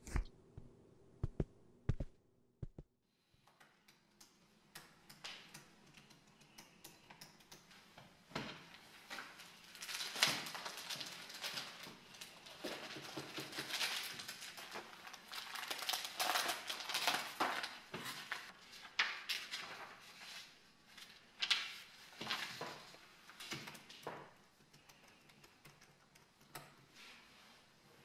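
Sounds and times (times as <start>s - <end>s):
paper rustling and pages turning: 8.7s - 24.3s.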